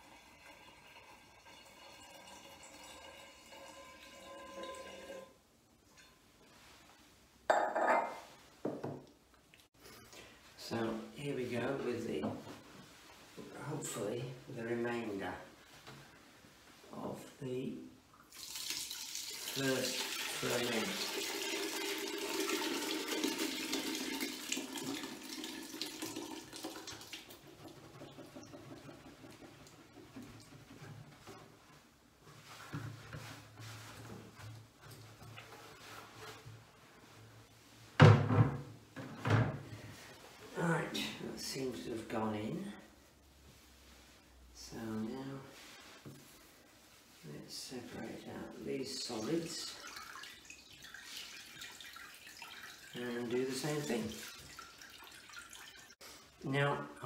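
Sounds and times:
liquid pouring into glass jug: 0.0 - 5.3, 18.2 - 29.3, 49.1 - 56.3.

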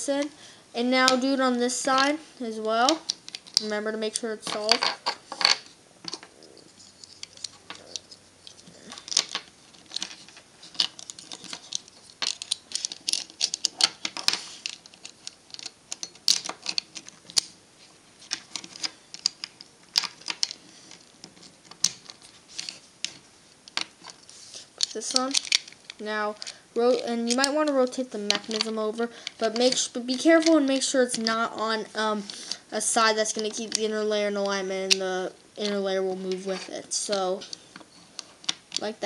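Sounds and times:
plastic puzzle pieces clicking: 2.7 - 3.7, 4.4 - 6.3, 6.9 - 17.5, 18.2 - 24.2, 24.8 - 31.4, 35.6 - 38.9.

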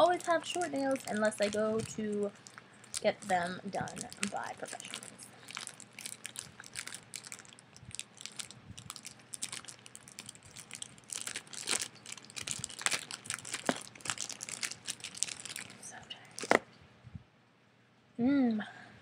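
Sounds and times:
plastic bag crinkling and tearing: 0.0 - 16.6.

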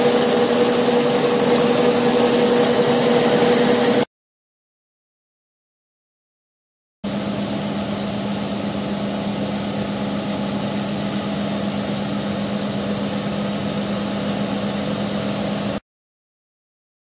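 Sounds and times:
combine harvester running: 0.0 - 4.1, 7.1 - 15.8.

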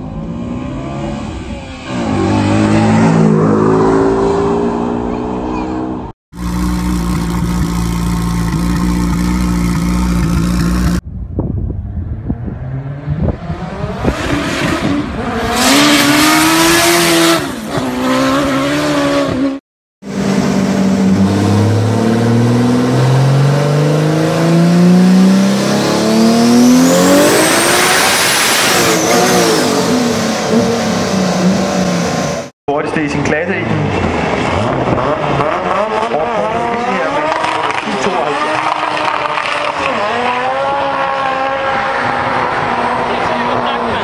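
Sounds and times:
motorcycle engine idling and revving: 0.0 - 27.5
car engine revving on dyno: 20.3 - 30.8.

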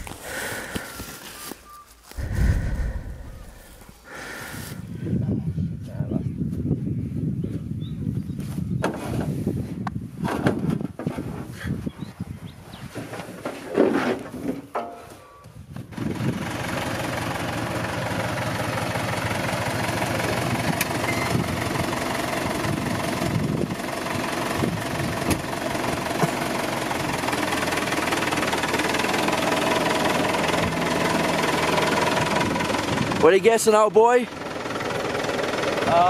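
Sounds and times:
tractor diesel engine idling: 2.1 - 4.8, 15.9 - 36.0.

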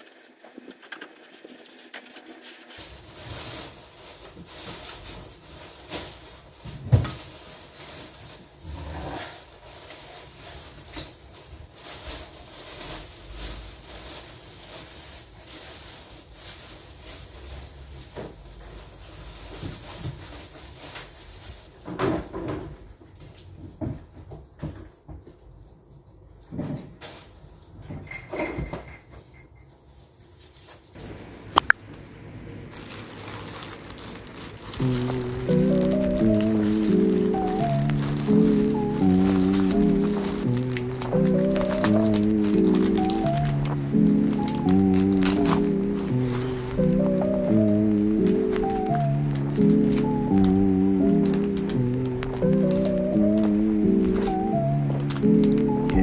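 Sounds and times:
plastic bags rustling: 2.8 - 21.7, 30.4 - 54.3.

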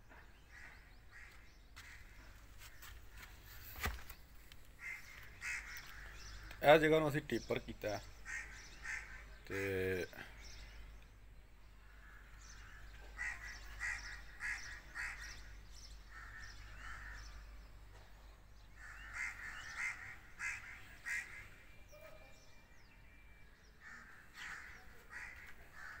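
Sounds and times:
crows cawing: 0.5 - 3.2, 4.8 - 6.6, 8.0 - 10.7, 11.8 - 22.0, 23.7 - 26.0.

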